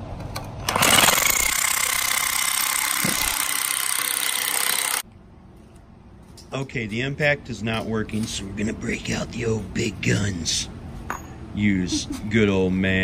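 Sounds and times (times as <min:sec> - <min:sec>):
impact wrench hammering: 0:00.8 - 0:05.0.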